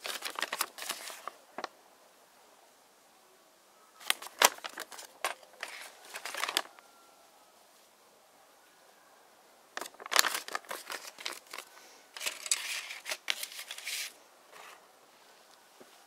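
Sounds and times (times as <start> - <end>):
paper rustling and crinkling: 0.0 - 1.7, 4.0 - 6.8, 9.8 - 14.8.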